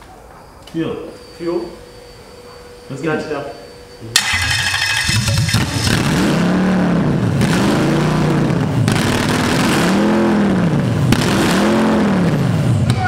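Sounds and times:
engine revving: 4.2 - 12.6.

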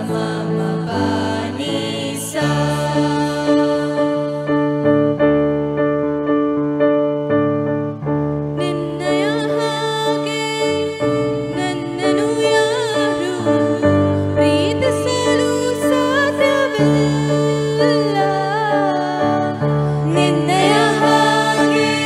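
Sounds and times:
electronic keyboard chords: 0.0 - 22.0.

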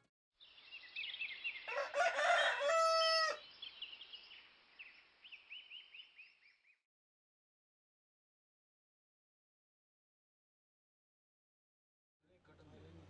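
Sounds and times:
small birds chirping: 0.4 - 1.9, 3.2 - 6.8
rooster crowing: 1.7 - 3.4.

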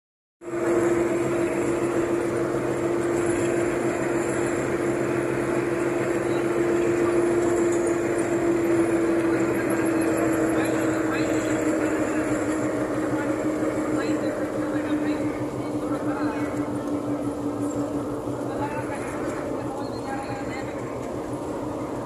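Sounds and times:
bus engine and road noise: 0.4 - 22.0
constant drone: 0.4 - 22.0.

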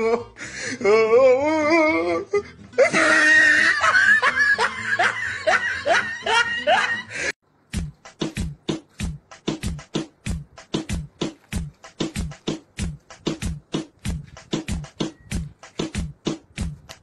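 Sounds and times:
hearty laughter: 2.7 - 7.3
music beat with sharp strikes: 7.7 - 17.0.

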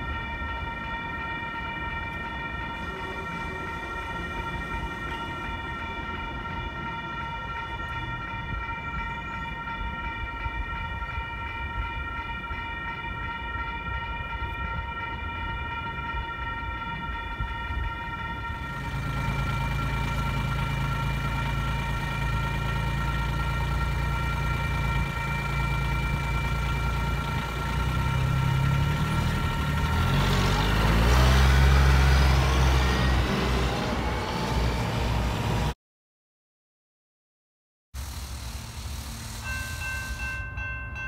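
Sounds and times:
chord of steady tones: 0.0 - 35.7, 38.5 - 41.0
vehicle engines running: 18.2 - 35.8, 38.0 - 40.5
vehicle passing close: 27.8 - 35.7.

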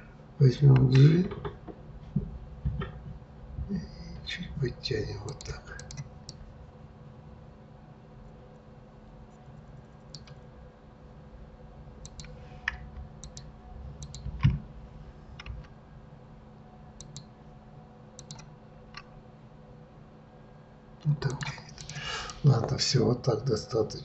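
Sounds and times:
mouse and keyboard clicking: 5.3 - 6.4, 10.0 - 10.4, 12.0 - 14.3, 17.0 - 17.3, 18.2 - 19.1, 21.2 - 22.4.

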